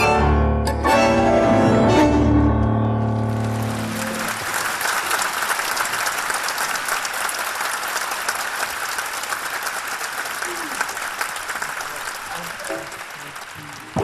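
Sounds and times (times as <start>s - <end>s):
tango ensemble playing: 0.0s - 4.6s
audience applause: 3.1s - 14.0s.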